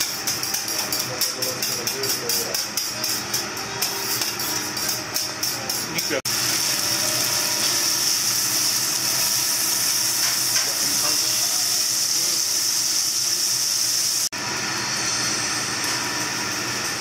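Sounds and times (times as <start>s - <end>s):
steaks sizzling on a griddle: 6.0s - 16.1s.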